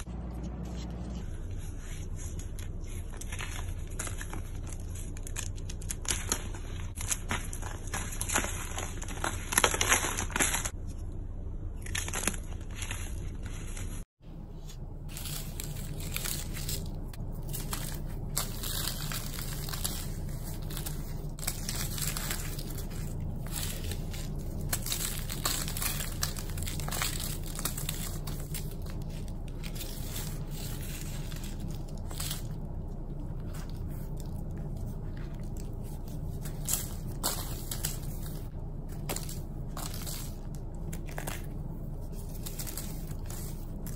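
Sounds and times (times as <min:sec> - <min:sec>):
chalk crunching and crumbling: 0:11.8 - 0:43.9.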